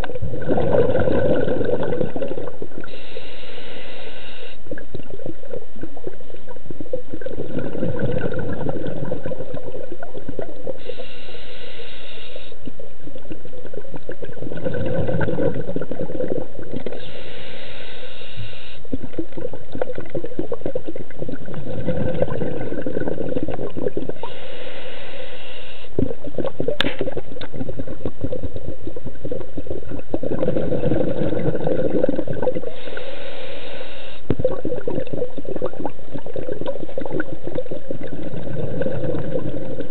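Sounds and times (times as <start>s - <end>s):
gurgling exhaled bubbles: 0.0s - 3.0s, 4.6s - 11.1s, 13.1s - 17.2s, 18.9s - 24.4s, 25.9s - 33.1s, 34.2s - 39.9s
diver breathing through regulator: 2.8s - 4.7s, 10.7s - 12.6s, 16.8s - 18.9s, 23.9s - 26.0s, 30.4s - 34.3s.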